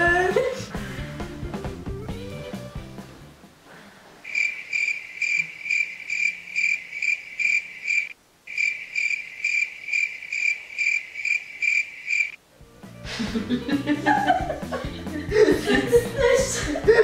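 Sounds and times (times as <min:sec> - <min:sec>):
cricket chirping: 0:04.2 - 0:12.4.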